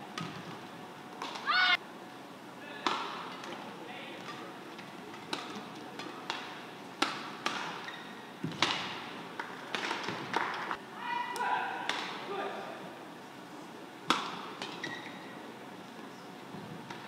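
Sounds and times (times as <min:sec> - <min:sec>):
indoor hall hum: 0:00.0 - 0:17.0
racket striking shuttlecock: 0:05.3 - 0:07.8, 0:14.1 - 0:14.8.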